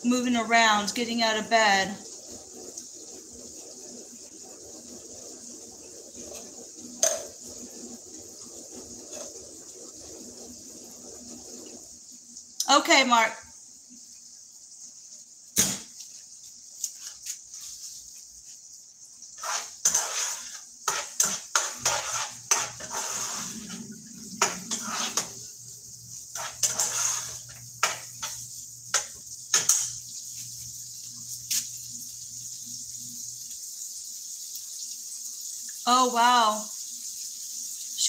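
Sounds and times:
food sizzling: 0.0 - 38.0
spatula scraping frying pan: 19.4 - 30.7.

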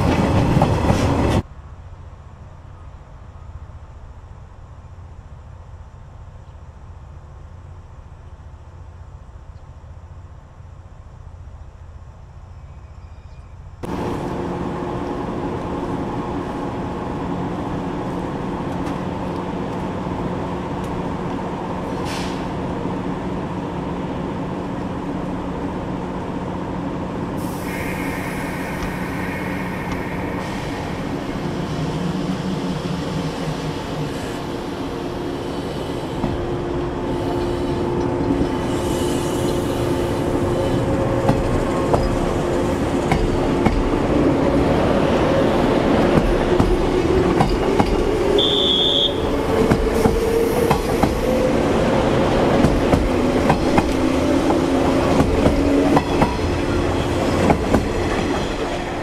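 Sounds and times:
electric train humming: 13.8 - 59.0
train wheels clicking: 49.4 - 51.4, 52.4 - 59.0.

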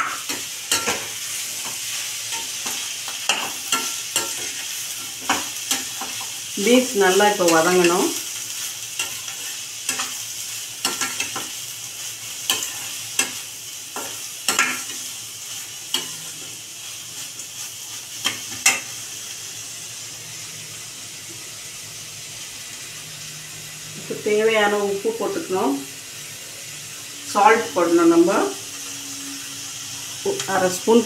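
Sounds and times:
metal spatula scraping a pan: 0.0 - 19.0
vegetables sizzling in oil: 0.0 - 31.0.

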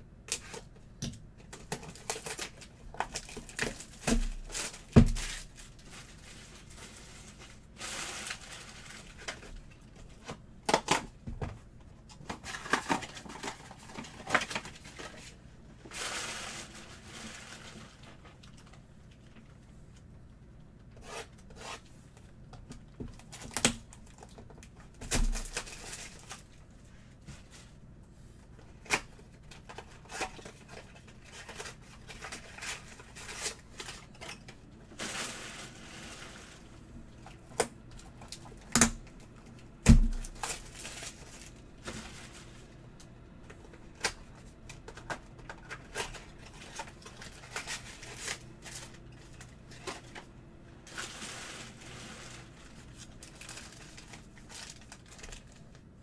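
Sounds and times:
wrappers torn open and crinkled: 1.5 - 9.6, 25.0 - 26.5, 40.0 - 42.3, 45.5 - 50.2, 50.9 - 55.8.

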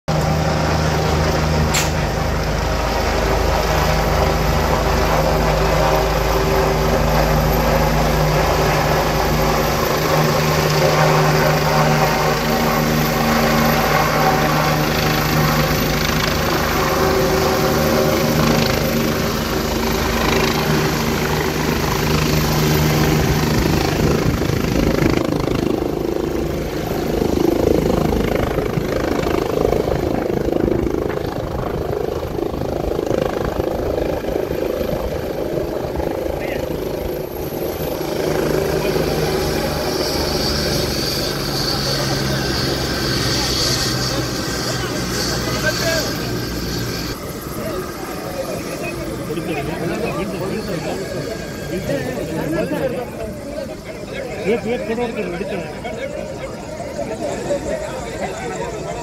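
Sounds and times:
helicopter rotor and turbine noise: 0.0 - 59.0
sharp click: 1.7 - 2.0.

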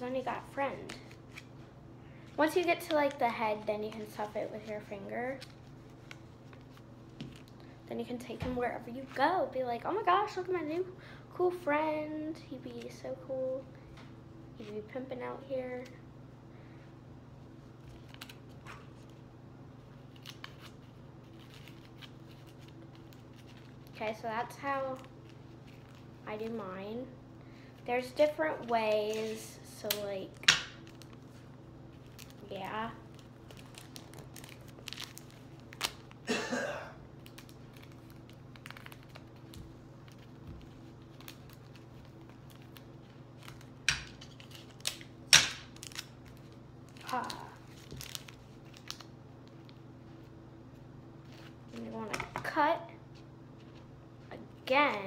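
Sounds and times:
low steady hum: 0.0 - 55.0
paper crinkling and rustling: 17.8 - 19.2, 19.8 - 24.1, 24.8 - 26.6, 30.8 - 36.2, 37.2 - 45.1, 45.7 - 50.3.

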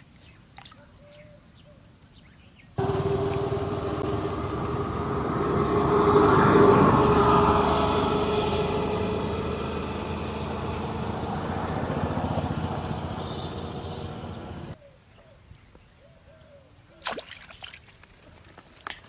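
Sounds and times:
vehicle engine rumble: 2.8 - 14.8.

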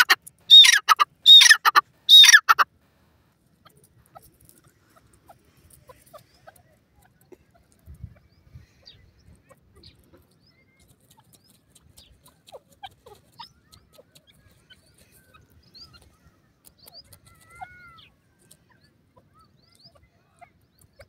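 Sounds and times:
bird chirps and squeaky notes: 0.0 - 2.6, 8.9 - 20.0.

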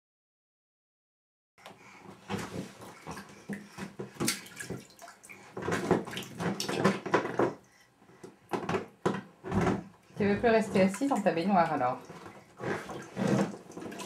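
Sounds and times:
bath water splashing: 1.7 - 7.7, 10.0 - 14.0.

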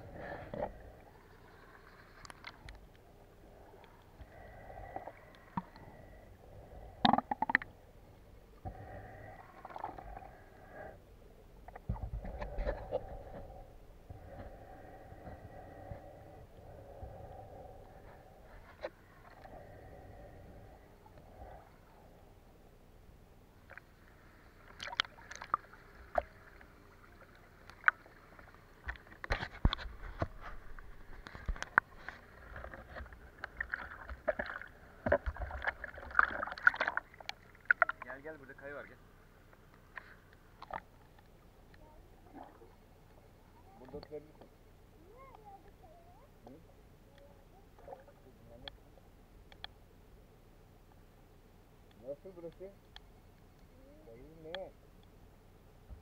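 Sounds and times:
faint hum: 0.0 - 56.0
muffled underwater ambience: 0.0 - 56.0
sharp pops and clicks: 7.0 - 7.7
water sloshing and splashing: 24.6 - 38.2.

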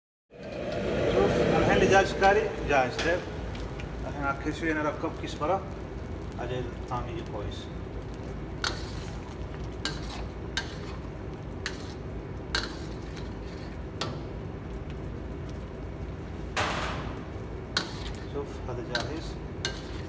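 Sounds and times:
low background rumble: 0.3 - 8.7
metal ladle scraping a wok: 9.8 - 13.8, 17.8 - 20.0.

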